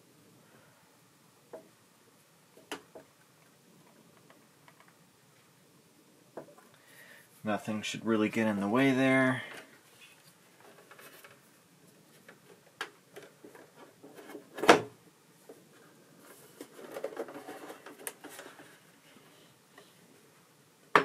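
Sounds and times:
light clicks and handling rustle: 9.2 - 14.6, 15.4 - 20.0.

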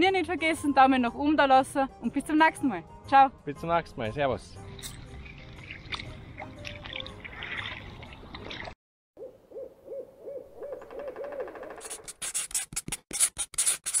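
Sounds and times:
water lapping at pebble shore: 5.0 - 8.8.

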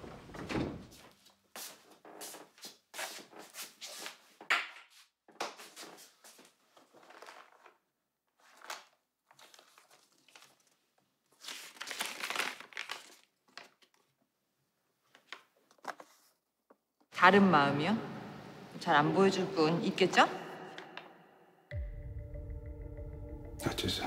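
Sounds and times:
paper crinkling and rustling: 5.6 - 14.2, 15.0 - 16.4.

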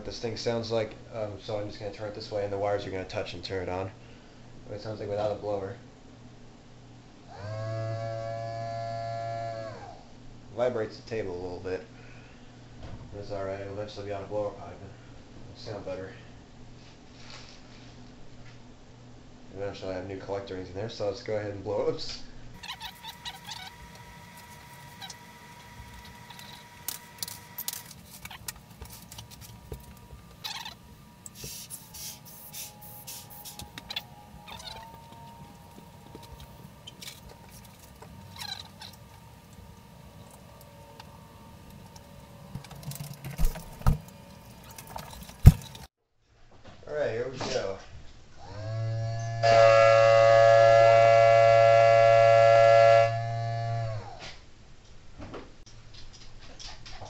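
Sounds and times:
low motor hum: 7.3 - 10.0, 22.5 - 45.9, 51.1 - 54.2
siren wailing: 22.6 - 31.2, 31.8 - 41.8
air blowing through siren: 22.6 - 42.5, 49.2 - 54.1
faint high whine: 22.6 - 45.9.

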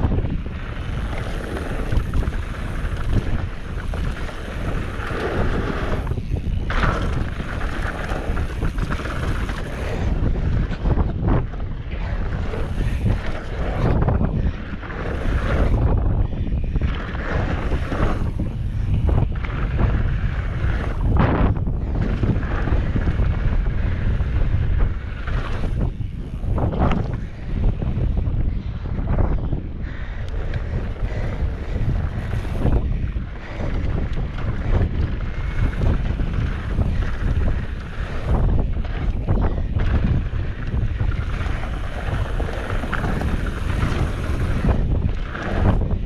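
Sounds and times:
tyres rolling over dirt: 0.0 - 16.0, 31.6 - 46.0
bike rattling over bumps: 0.0 - 46.0
wind buffeting microphone: 0.0 - 46.0.

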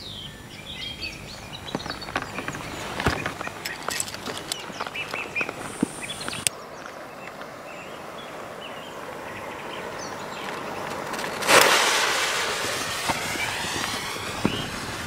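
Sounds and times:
birds chirping: 0.0 - 11.6, 13.1 - 14.9
steady hiss: 0.0 - 15.0
firecracker being handled: 1.6 - 6.5, 10.5 - 15.0.

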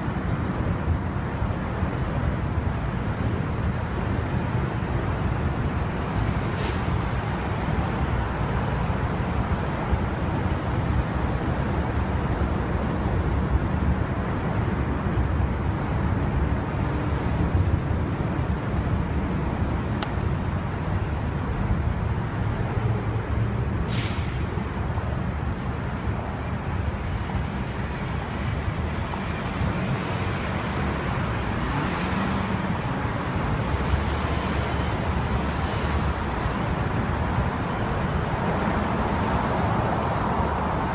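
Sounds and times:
street traffic rumbling: 0.0 - 40.9
brief hiss: 6.6 - 6.9, 23.9 - 24.5.

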